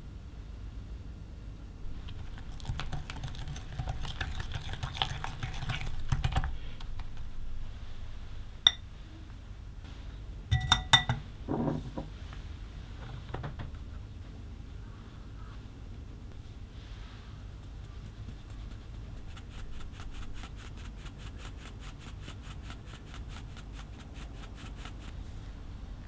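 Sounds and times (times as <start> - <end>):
whisk clicking on glass bowl: 2.1 - 6.5
utensil clinking on glass: 10.5 - 11.2.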